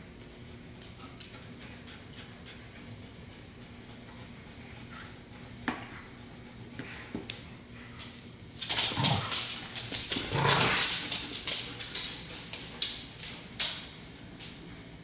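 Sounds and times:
dogs play-growling and snarling: 0:08.7 - 0:11.5.

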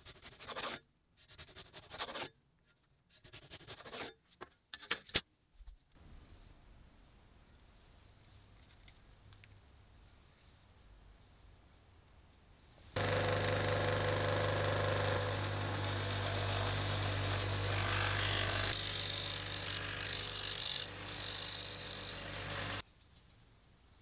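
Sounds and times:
scroll saw running: 0:13.0 - 0:22.8.

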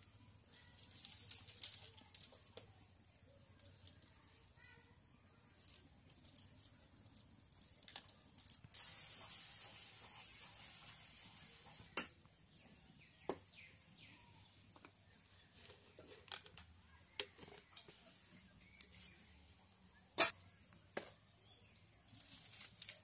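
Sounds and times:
steady hiss: 0:08.4 - 0:11.9.

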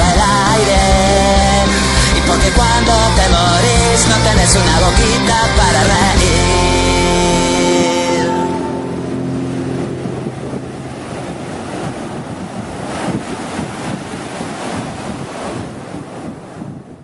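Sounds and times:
ocean surf breaking: 0:00.0 - 0:17.0
wind buffeting microphone: 0:06.3 - 0:17.0.

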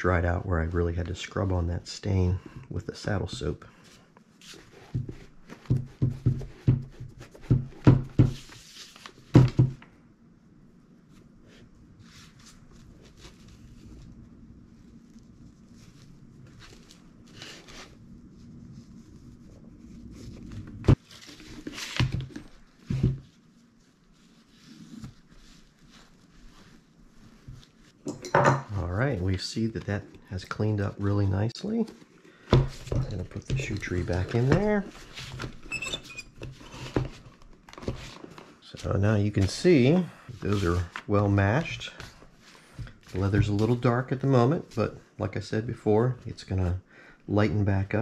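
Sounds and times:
cloth rubbing leather boot: 0:11.1 - 0:28.0
cloth rubbing on leather boot: 0:22.6 - 0:28.0.

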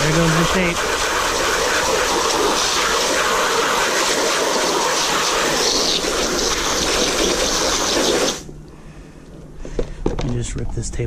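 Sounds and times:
water jet spraying rubber mat: 0:00.0 - 0:08.5.

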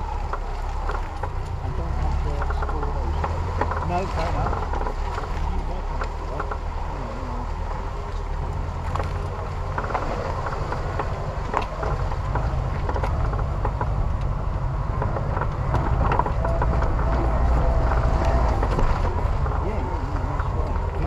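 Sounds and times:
car engine running low: 0:00.0 - 0:21.0
car body knocks and rattles: 0:08.8 - 0:19.7.

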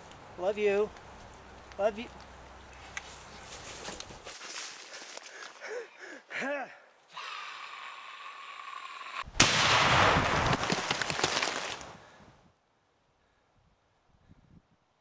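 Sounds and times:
crackling gunfire blast: 0:09.3 - 0:11.8.

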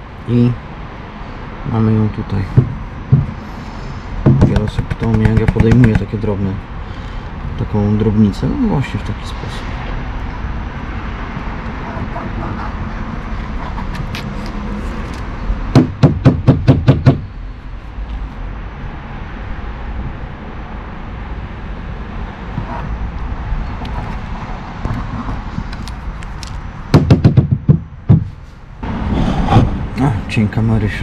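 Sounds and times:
rapid hand tapping: 0:04.3 - 0:06.1.

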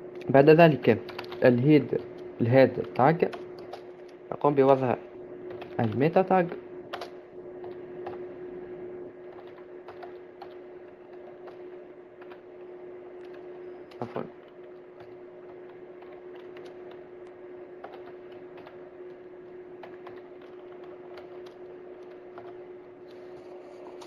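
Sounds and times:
steady low hum: 0:00.0 - 0:24.0
keyboard typing clicks: 0:01.1 - 0:01.4, 0:06.9 - 0:08.2, 0:09.3 - 0:12.4, 0:13.2 - 0:19.2, 0:19.8 - 0:23.2.

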